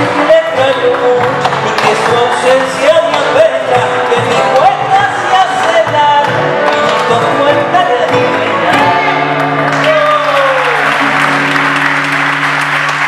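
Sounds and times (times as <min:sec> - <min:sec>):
men singing: 0:00.0 - 0:09.4
acoustic guitars: 0:00.0 - 0:13.0
audience applause and cheering: 0:09.2 - 0:13.0.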